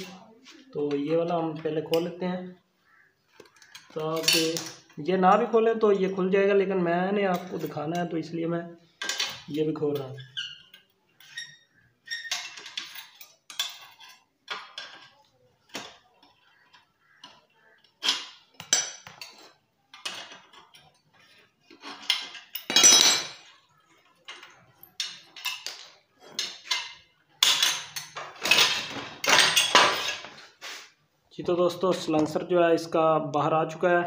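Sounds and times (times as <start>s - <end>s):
metallic clinks and clanks: 9.0s - 30.3s.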